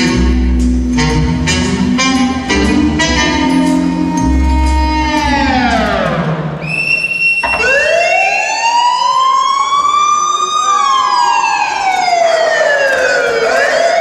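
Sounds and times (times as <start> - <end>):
wailing siren: 7.4 - 14.0.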